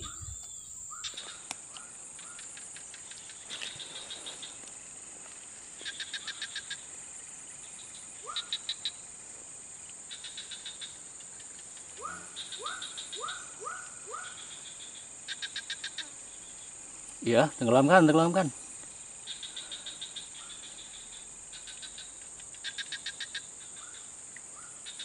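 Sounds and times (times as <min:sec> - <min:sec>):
quick rising chirp: 0:00.0 - 0:01.0
rapid pulsed calls: 0:00.0 - 0:04.6, 0:10.1 - 0:16.6
high insect buzz: 0:00.0 - 0:25.0.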